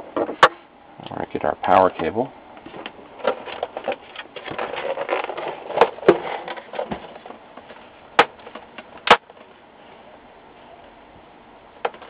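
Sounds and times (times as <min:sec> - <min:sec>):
plastic rustling: 0:02.7 - 0:09.9.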